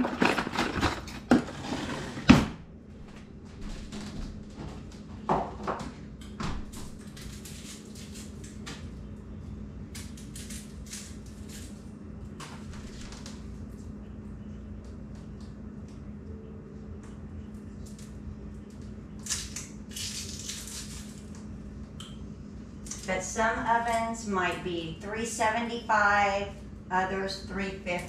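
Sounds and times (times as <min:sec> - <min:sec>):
kitchen items clicking and knocking: 0:00.0 - 0:02.0
low steady hum: 0:00.0 - 0:28.0.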